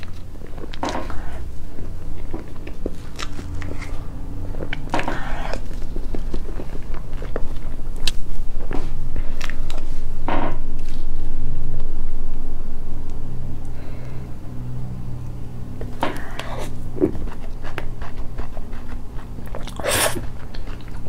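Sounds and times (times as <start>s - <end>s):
soft chewing and mouth clicks: 0.0s - 10.0s, 15.2s - 21.0s
low steady hum: 0.0s - 21.0s.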